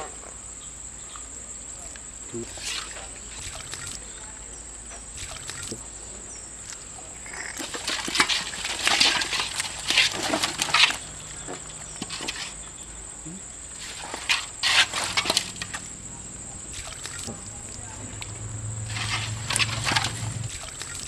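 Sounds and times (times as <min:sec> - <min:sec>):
fish splashing in a bucket: 0:02.3 - 0:04.4, 0:05.0 - 0:05.9, 0:06.5 - 0:21.0.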